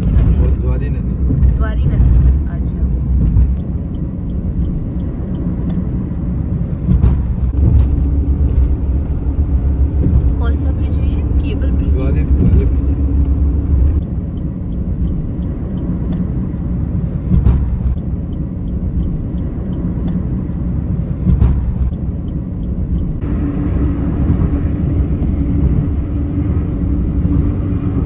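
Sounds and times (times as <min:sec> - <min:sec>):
car road noise rumble: 0:00.0 - 0:28.0
steady hum: 0:00.0 - 0:28.0
brief thumps: 0:06.8 - 0:08.8, 0:21.2 - 0:22.0.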